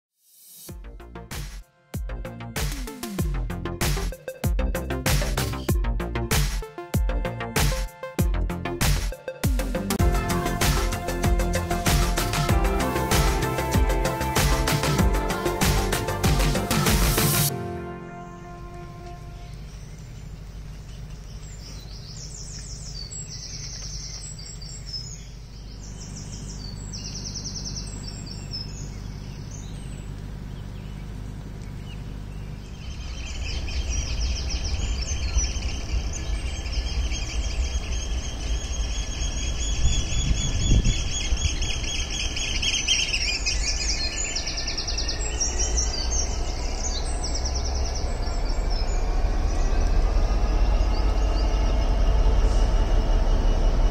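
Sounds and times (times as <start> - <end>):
diesel locomotive engine rumble: 9.9 - 23.8, 24.6 - 53.9
low distant hum: 10.0 - 53.9
birds singing: 18.3 - 53.9
high-pitched squeal: 42.4 - 53.9.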